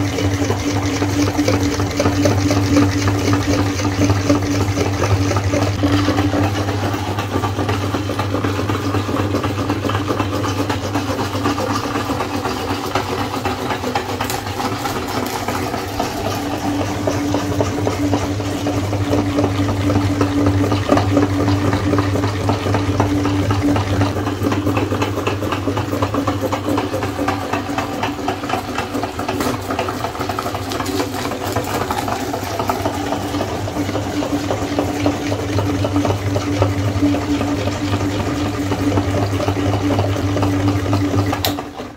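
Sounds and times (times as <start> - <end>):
electric meat grinder running: 0.0 - 41.9.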